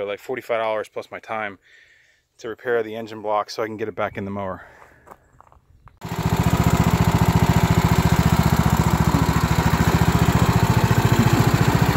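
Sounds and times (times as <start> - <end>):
lawn tractor engine running: 6.0 - 11.9.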